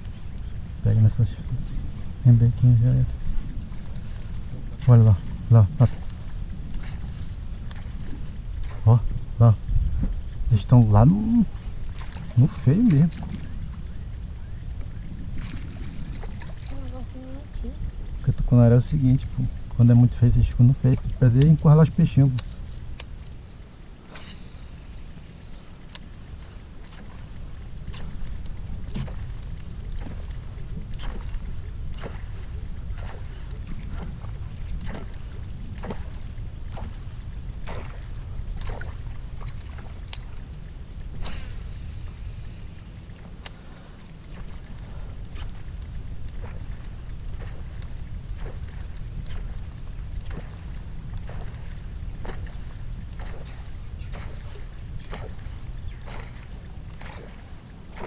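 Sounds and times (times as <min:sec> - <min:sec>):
steady low rumble: 0:00.0 - 0:58.0
water splashes and knocks: 0:27.9 - 0:41.4, 0:44.3 - 0:58.0.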